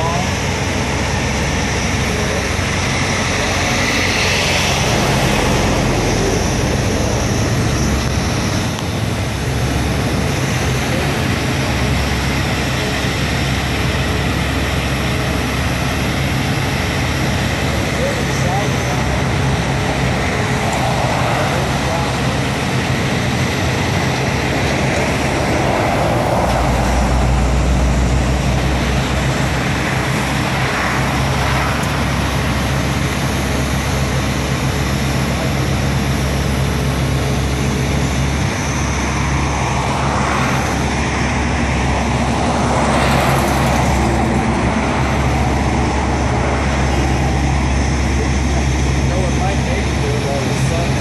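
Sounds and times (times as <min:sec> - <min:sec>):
heavy engines droning: 0:00.0 - 0:51.0
traffic and road noise: 0:00.0 - 0:51.0.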